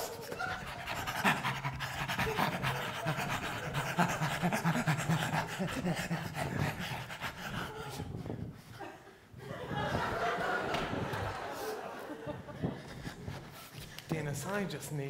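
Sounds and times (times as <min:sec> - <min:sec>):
people panting like dogs: 0:00.0 - 0:14.1.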